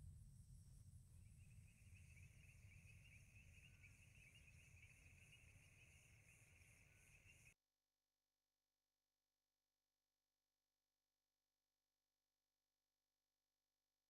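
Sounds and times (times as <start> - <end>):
insects chirping: 1.2 - 7.6.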